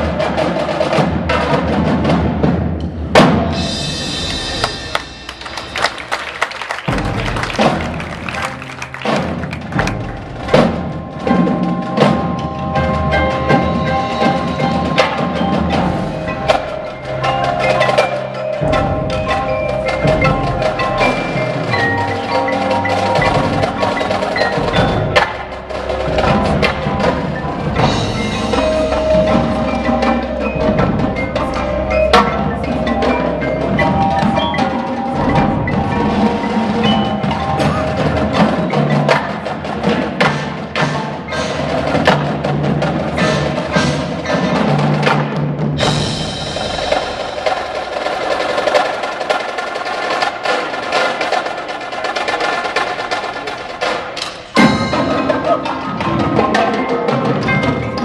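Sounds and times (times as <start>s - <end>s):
bass drums: 0.0s - 34.4s, 41.7s - 48.6s
snare drums: 0.0s - 58.0s
tenor drums: 0.0s - 58.0s
marimba mallet keyboards: 3.3s - 58.0s.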